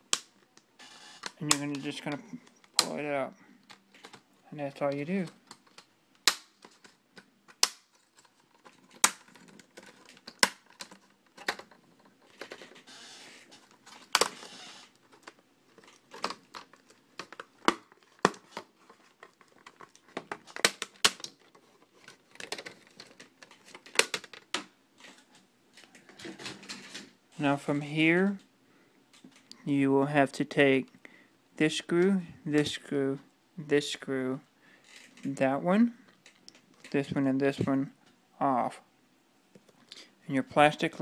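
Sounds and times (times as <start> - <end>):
plastic scraping: 3.6 - 5.9, 6.6 - 27.2
plastic clips snapping: 5.4 - 11.8, 15.1 - 24.7.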